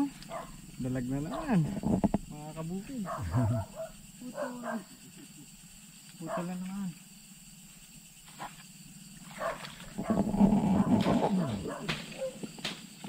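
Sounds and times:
animal rough pulsing call: 3.0s - 5.0s, 8.8s - 12.5s.

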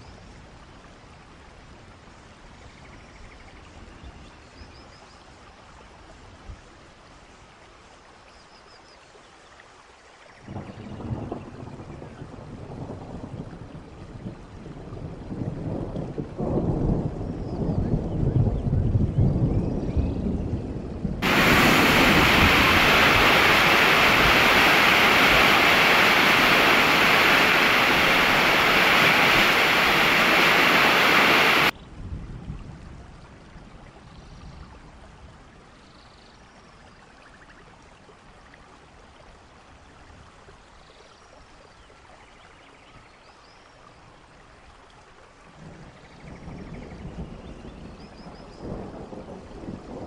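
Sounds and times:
faint water hiss: 0.0s - 10.9s, 21.2s - 31.7s
roar of falling water: 21.2s - 31.8s.

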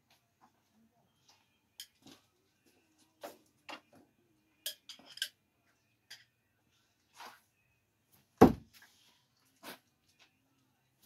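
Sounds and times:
screwdrivers clicking and clinking: 4.6s - 5.4s.

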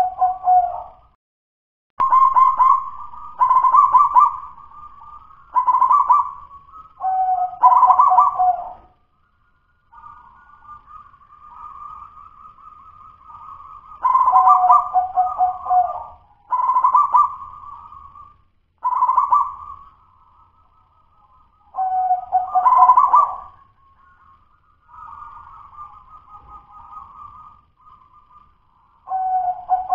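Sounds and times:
dove cooing: 0.0s - 1.1s, 2.0s - 9.0s, 9.9s - 19.9s, 21.7s - 23.6s, 24.9s - 29.9s.

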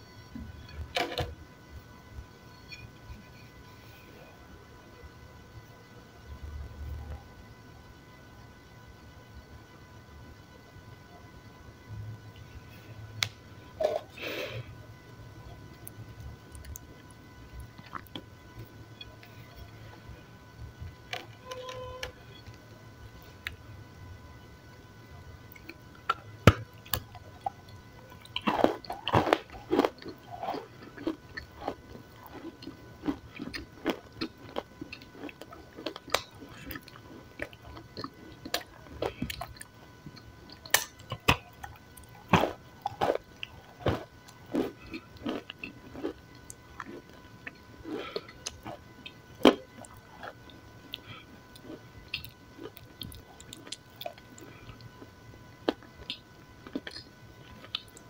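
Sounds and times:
biting and chewing crunchy food: 15.6s - 20.3s, 25.4s - 58.0s.

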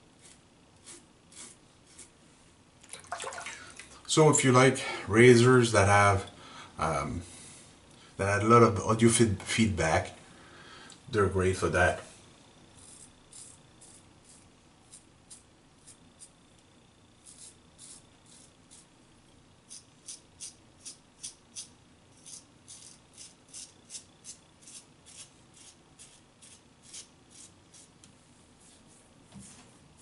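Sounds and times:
razor scraping stubble: 0.2s - 2.1s, 12.8s - 16.4s, 17.2s - 18.9s, 19.7s - 28.0s.

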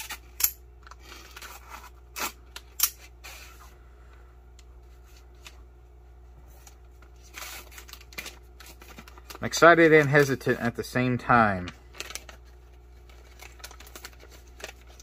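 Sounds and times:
plastic packaging crinkling: 7.1s - 10.4s, 11.4s - 15.0s.

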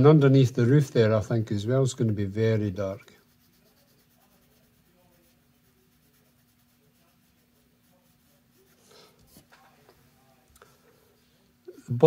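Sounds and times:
faint steady hum: 0.0s - 12.0s
pencil scratching on paper: 2.1s - 9.5s.

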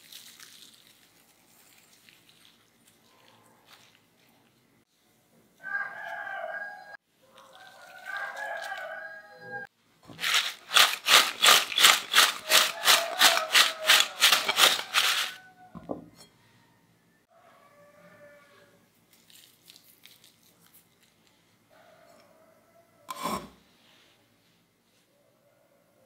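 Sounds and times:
potato sticks rattling in glass bowl: 10.1s - 15.5s.

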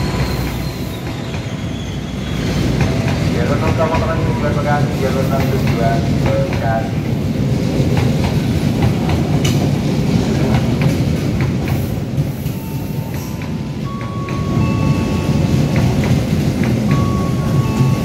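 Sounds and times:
high squeals: 0.0s - 2.7s
train coaches rumbling: 0.0s - 18.0s.

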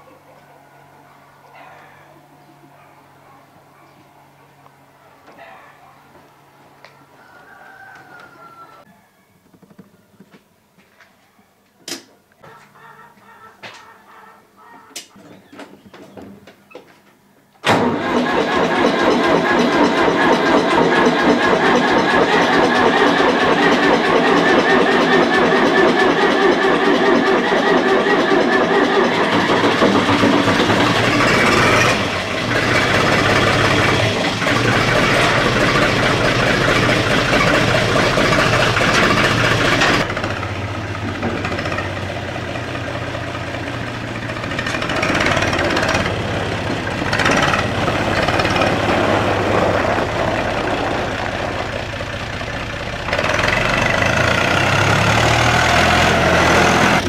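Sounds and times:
tractor diesel engine running: 17.6s - 57.0s.

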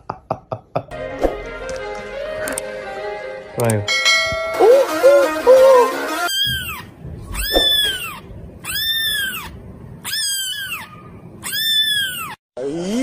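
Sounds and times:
kitten mewing: 6.3s - 12.4s.

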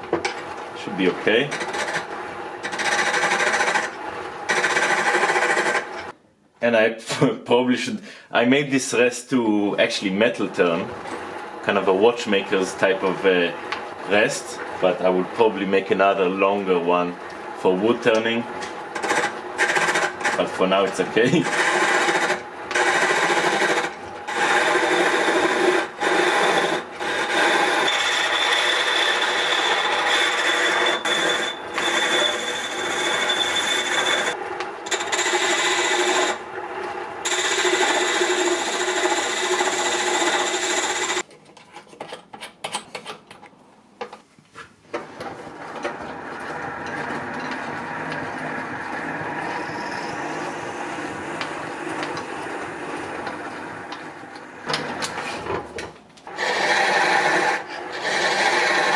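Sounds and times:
lathe running: 0.3s - 6.1s, 11.0s - 41.2s, 45.5s - 55.2s, 56.3s - 58.9s
chisel scraping wood on lathe: 1.0s - 6.1s, 18.0s - 36.4s, 37.3s - 41.3s, 45.9s - 53.7s, 56.3s - 58.9s.

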